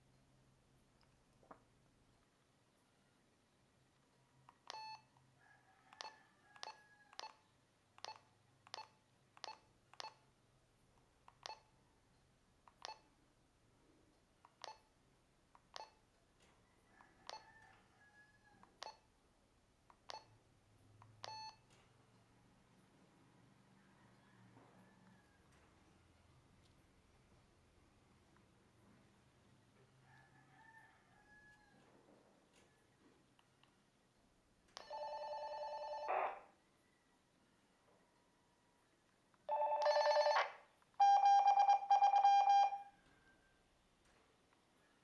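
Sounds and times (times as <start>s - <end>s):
walkie-talkie keypad beeps: 39.5s - 42.9s.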